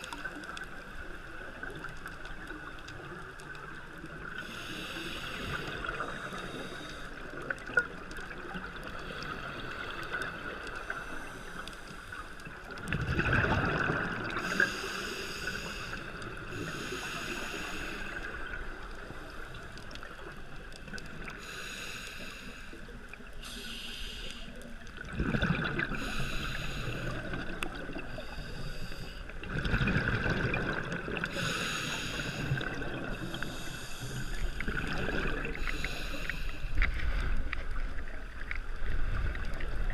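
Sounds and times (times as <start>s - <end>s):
regulator hissing inhalations: 4.4s - 7.2s, 14.4s - 18.4s, 21.4s - 24.6s, 26.0s - 27.3s, 28.1s - 29.3s, 31.3s - 34.7s, 35.5s - 36.8s
exhaled bubbles rumbling: 12.4s - 14.6s, 24.8s - 26.2s, 29.4s - 31.5s, 32.4s - 35.9s.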